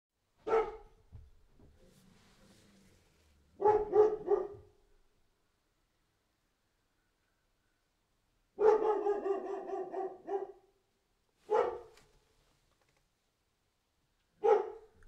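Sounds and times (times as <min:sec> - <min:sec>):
dog barking: 0:00.4 - 0:01.0, 0:03.6 - 0:04.8, 0:08.6 - 0:10.8, 0:11.5 - 0:12.1, 0:14.4 - 0:15.0.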